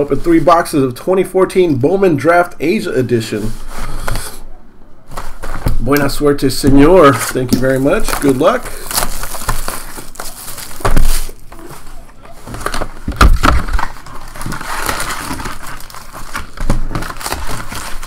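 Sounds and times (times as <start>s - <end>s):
card packs crinkling: 6.8s - 18.0s
plastic shrink wrap tearing: 7.1s - 18.0s.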